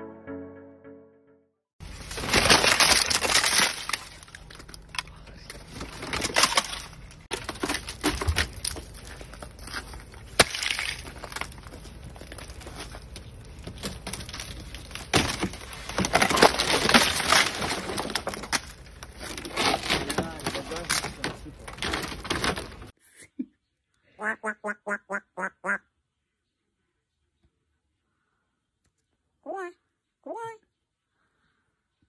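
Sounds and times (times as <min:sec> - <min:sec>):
ice cracking and breaking: 0:01.8 - 0:22.9.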